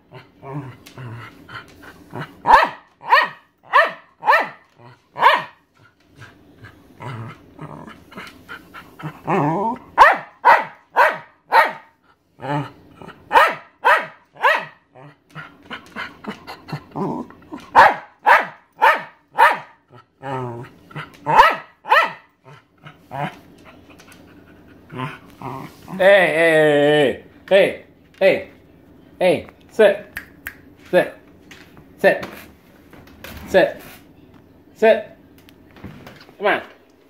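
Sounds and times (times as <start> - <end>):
dog growling: 0.0 - 2.6, 4.7 - 5.3, 6.1 - 10.0, 12.3 - 13.4, 14.9 - 17.8, 19.8 - 21.5, 22.3 - 27.0
dog barking sharply: 2.5 - 4.6, 5.2 - 5.6, 10.0 - 11.9, 13.3 - 14.8, 17.8 - 19.8, 21.3 - 22.3.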